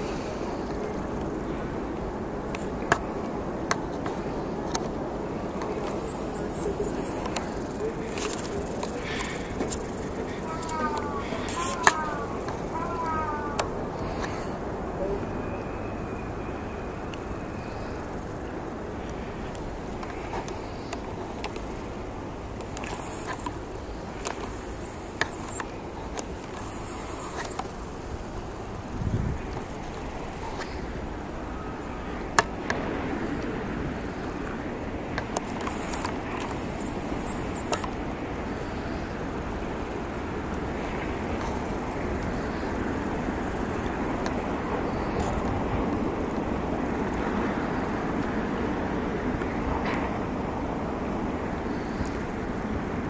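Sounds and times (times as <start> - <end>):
wind on microphone: 0.0 - 53.0
sharp clicks: 22.6 - 28.0.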